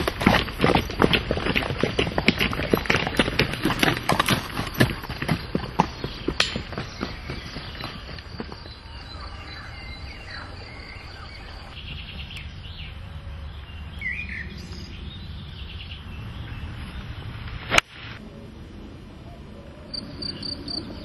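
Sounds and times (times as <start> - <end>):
bird chirps: 4.7 - 17.4
low outdoor rumble: 8.2 - 21.0.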